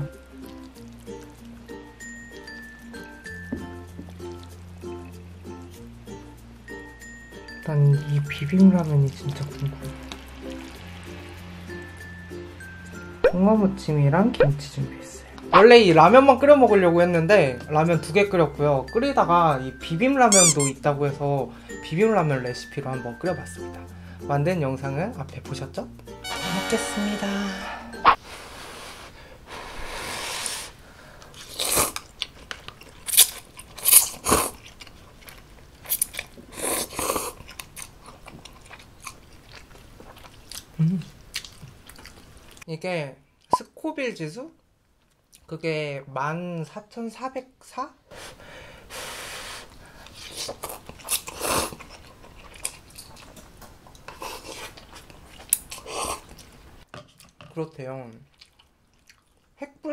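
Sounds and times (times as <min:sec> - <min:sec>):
chewing: 0:00.1 - 0:01.9, 0:31.2 - 0:42.7, 0:49.7 - 0:57.5, 0:58.1 - 0:59.6
noodles slurping: 0:00.3 - 0:01.9
slurping noodles: 0:27.9 - 0:32.1, 0:33.0 - 0:34.6, 0:35.9 - 0:37.5, 0:48.9 - 0:52.6.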